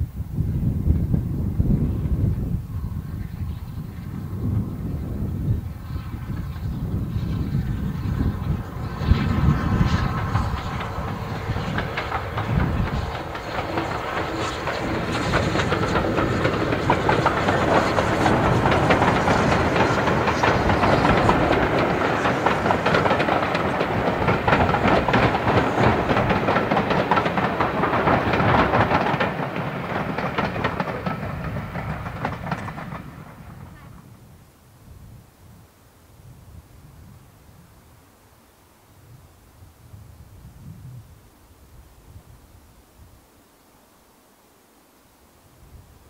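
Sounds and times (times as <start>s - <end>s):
steam locomotive passing: 0.0s - 43.3s
wheels clattering on rails: 3.5s - 34.2s.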